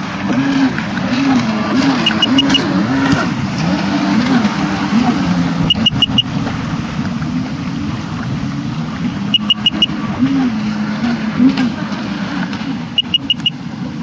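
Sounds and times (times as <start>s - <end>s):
watercraft engine running: 0.0s - 14.0s
short high pips: 9.4s - 9.9s.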